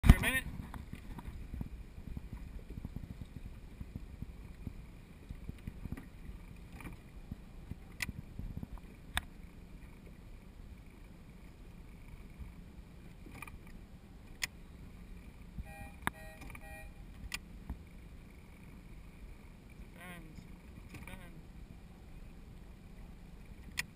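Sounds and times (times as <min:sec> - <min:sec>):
wind and water noise: 0:00.0 - 0:23.9
short beeps: 0:15.6 - 0:17.1.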